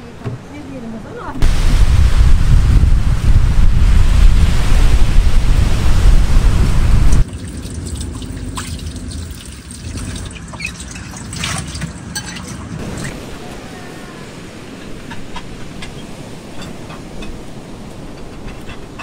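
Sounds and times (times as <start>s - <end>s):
wind buffeting microphone: 1.1s - 7.3s
water dripping and trickling: 7.1s - 13.2s.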